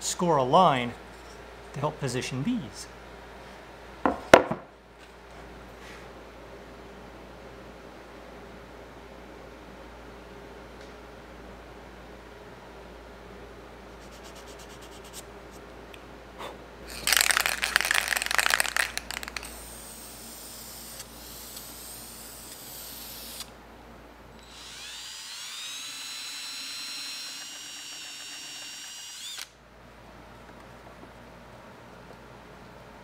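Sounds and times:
power drill whining: 24.4 - 29.5.

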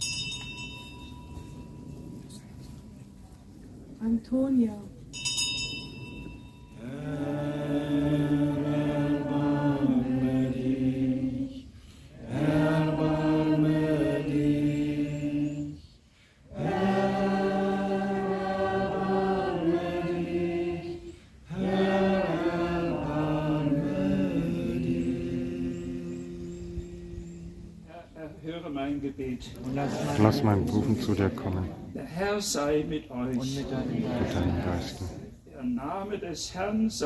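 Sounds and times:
group singing liturgical chant: 6.8 - 27.9, 29.4 - 31.7, 33.4 - 35.4.

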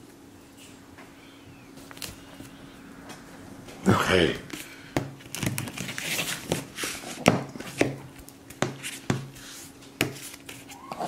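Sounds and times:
marker tapping and scratching on paper: 7.2 - 10.6.

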